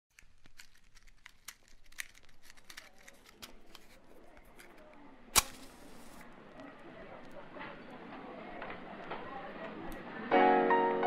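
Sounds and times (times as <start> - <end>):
matchbox clicks and rustles: 0.1 - 7.4.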